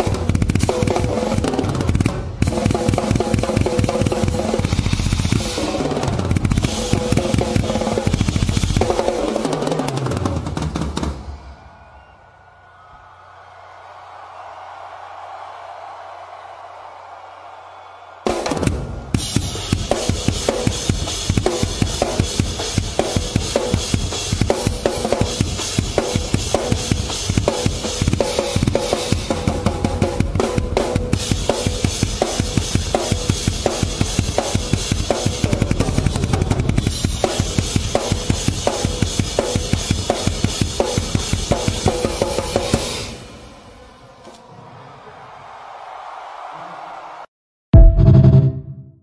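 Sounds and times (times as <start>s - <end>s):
heavy metal drum kit: 0.0s - 11.4s, 18.3s - 43.3s, 47.8s - 48.8s.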